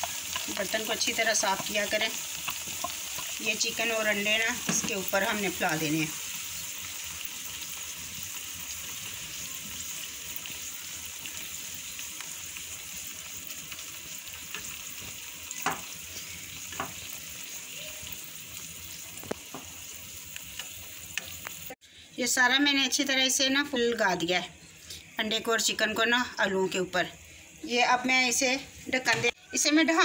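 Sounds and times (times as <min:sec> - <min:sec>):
egg mixture sizzling in oil: 0:00.0 - 0:21.8.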